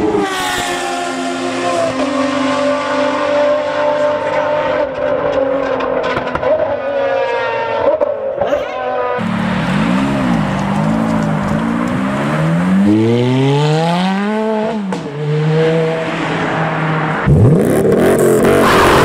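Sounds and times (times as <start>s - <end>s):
race car engine at high revs: 0.0s - 19.0s
sports car engine revving: 9.0s - 16.2s, 17.2s - 19.0s.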